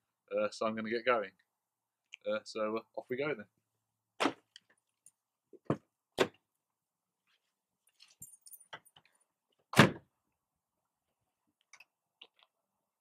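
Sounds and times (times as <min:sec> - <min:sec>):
keys jingling: 0:07.9 - 0:09.1.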